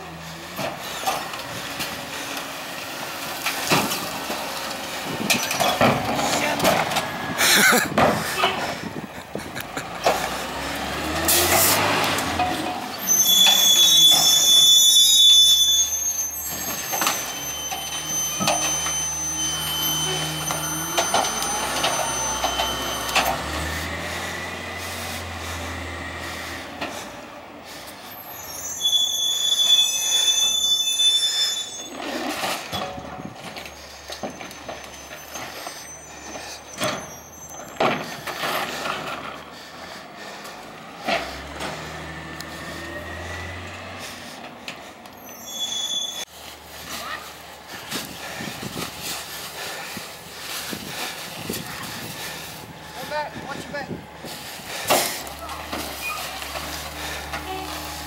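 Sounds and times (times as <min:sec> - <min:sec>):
garbage truck engine running: 0:00.0 - 0:28.4, 0:31.7 - 0:58.0
high-pitched brake squeal: 0:12.8 - 0:24.8, 0:28.0 - 0:39.2, 0:45.1 - 0:46.4, 0:54.7 - 0:58.0.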